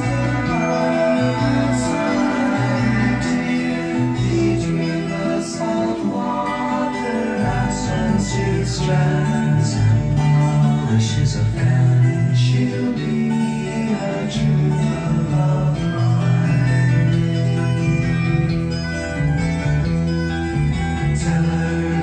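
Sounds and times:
song with guitar and beat: 0.0s - 22.0s.

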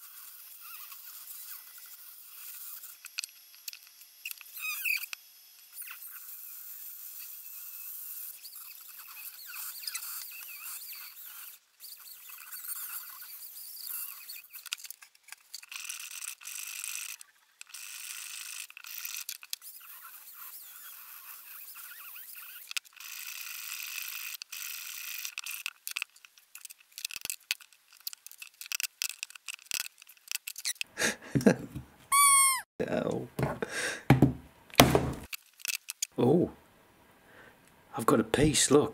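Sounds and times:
rotary tool grinding whine: 0.0s - 27.7s
brief falling squeal: 32.1s - 32.7s
sharp knocks: 33.4s - 35.3s.

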